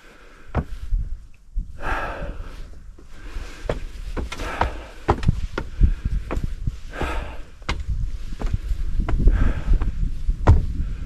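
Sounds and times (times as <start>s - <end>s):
heavy breathing: 0.0s - 11.0s
footsteps on trail: 3.0s - 10.8s.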